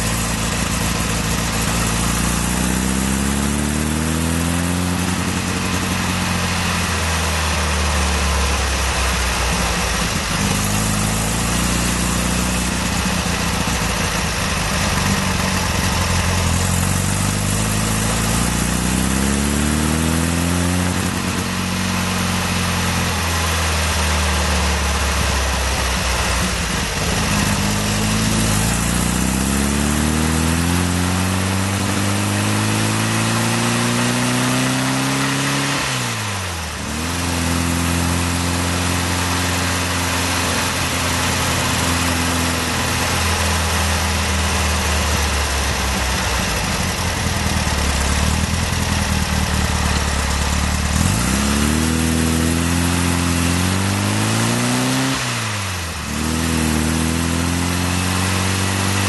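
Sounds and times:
van engine exhaust note: 0.0 - 59.0.

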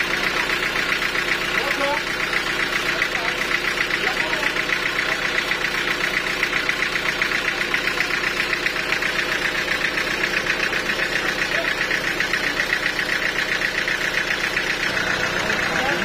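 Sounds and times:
sawmill machinery pulsing: 0.0 - 16.0.

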